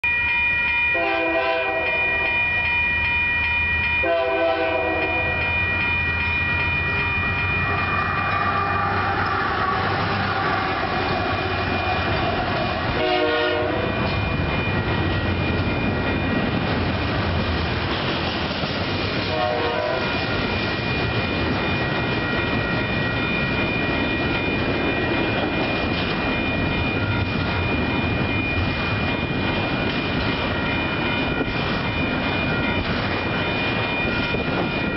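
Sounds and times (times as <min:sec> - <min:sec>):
crossing bell ringing: 0:00.0 - 0:34.9
rolling clatter of train cars: 0:00.0 - 0:34.9
locomotive air horn blasts: 0:01.0 - 0:02.2, 0:04.0 - 0:05.4, 0:13.0 - 0:14.0, 0:19.3 - 0:20.2
diesel locomotive engine rumble: 0:01.0 - 0:34.9.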